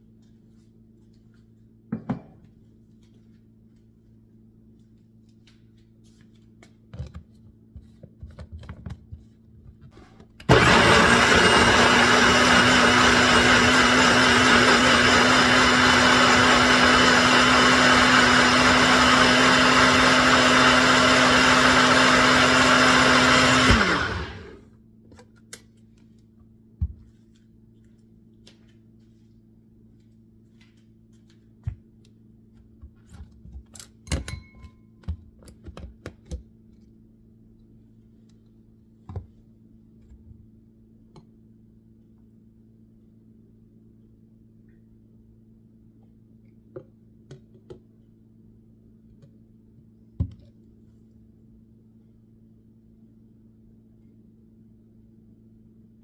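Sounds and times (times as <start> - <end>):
blender motor whine: 10.5 - 24.6.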